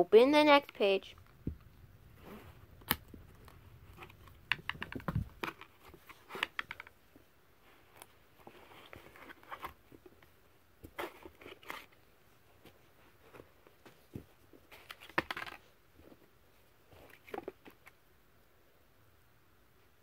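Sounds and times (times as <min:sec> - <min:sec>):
cardboard book pages turning: 0:00.7 - 0:06.9, 0:07.7 - 0:12.0.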